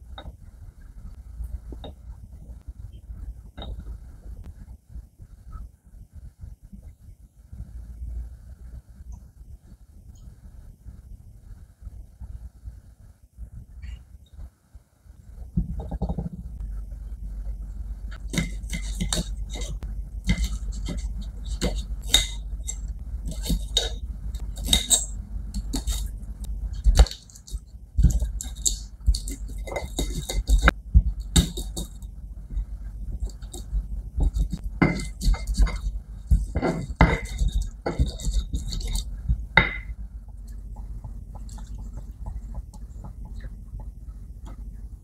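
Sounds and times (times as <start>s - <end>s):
pestle knocking and grinding: 26.8s - 32.0s, 33.2s - 40.0s.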